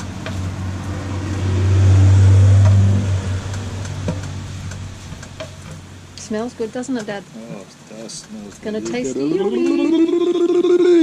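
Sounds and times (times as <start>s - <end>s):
vehicle engine passing: 0.0s - 6.1s.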